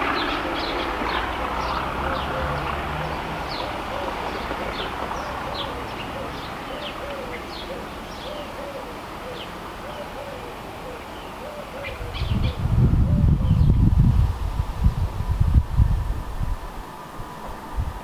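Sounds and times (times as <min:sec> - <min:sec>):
diesel locomotive rumble: 0:00.0 - 0:08.2
birds singing: 0:00.0 - 0:14.0.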